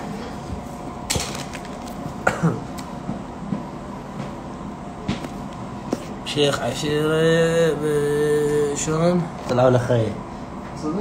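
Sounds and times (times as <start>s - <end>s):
man clearing throat: 2.2s - 2.7s.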